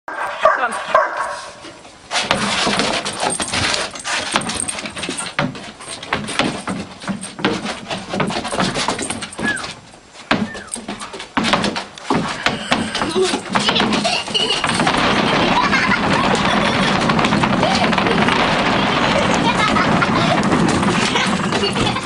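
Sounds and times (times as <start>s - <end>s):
dog scrabbling on deck: 0.8s - 22.0s
balls bouncing on wooden deck: 1.6s - 22.0s
short falling squeaks: 8.6s - 9.8s, 10.4s - 11.2s.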